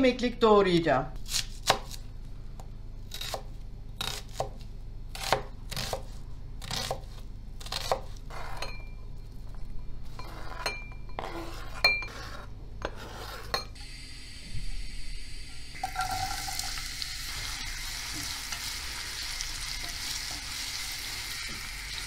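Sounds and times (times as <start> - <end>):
knife chopping on cutting board: 4.0 - 8.6
knife scraping onion off board: 5.2 - 8.7, 10.1 - 13.7.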